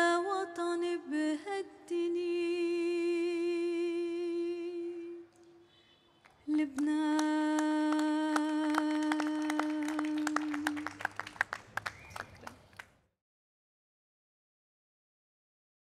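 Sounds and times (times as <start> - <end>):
woman singing long notes: 0.0 - 5.4, 6.5 - 11.3
people clapping: 6.1 - 13.0.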